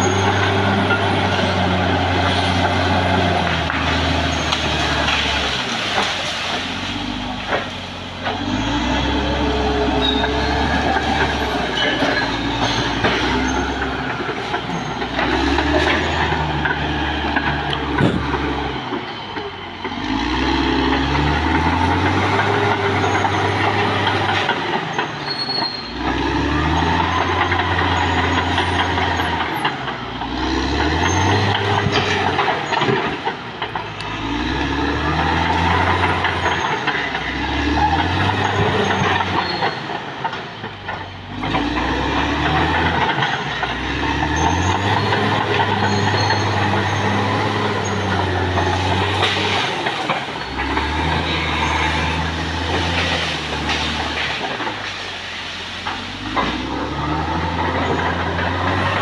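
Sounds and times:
dozer diesel engine under load: 0.0s - 59.0s
steel tracks clattering: 0.0s - 59.0s.

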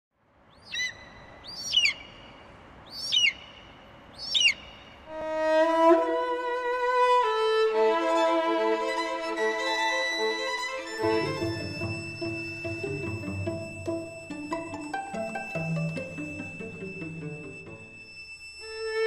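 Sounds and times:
high bird cries: 0.6s - 5.1s
violin-led string music: 5.1s - 19.0s.

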